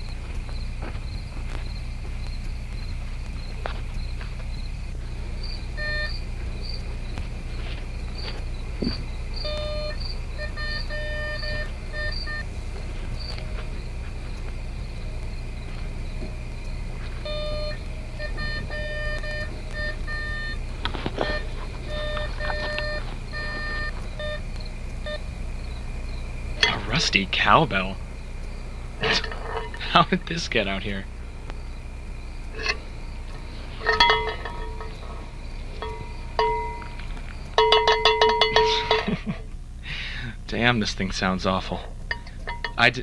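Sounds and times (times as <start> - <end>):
low hum and hiss: 0.0 - 43.0
metal detector beeping: 5.8 - 6.2, 9.4 - 12.5, 17.2 - 24.4, 25.0 - 25.2, 26.6 - 27.2, 32.5 - 32.9, 33.5 - 39.2.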